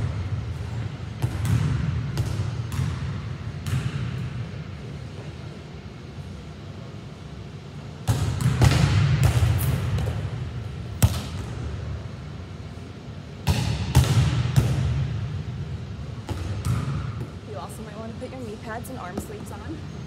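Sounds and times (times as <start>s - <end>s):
volleyball smacking wall and floor: 1.1s - 4.5s, 8.0s - 11.8s, 13.4s - 15.4s, 16.2s - 17.4s.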